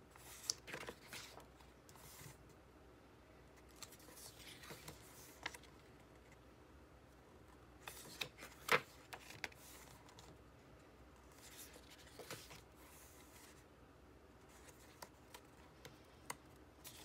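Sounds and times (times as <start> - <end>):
paper pages rustling: 0.2 - 2.4, 3.6 - 5.8, 7.8 - 10.4, 11.2 - 13.6.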